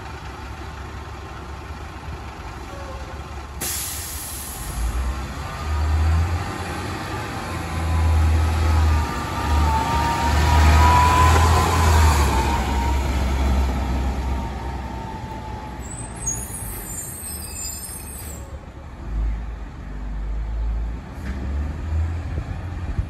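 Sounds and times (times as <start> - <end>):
diesel bus engine passing: 0.0 - 23.0
high-pitched squeal: 15.6 - 18.6.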